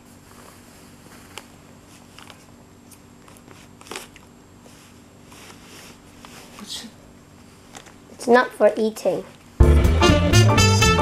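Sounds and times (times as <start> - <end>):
plastic bottle crinkling: 3.2 - 4.3.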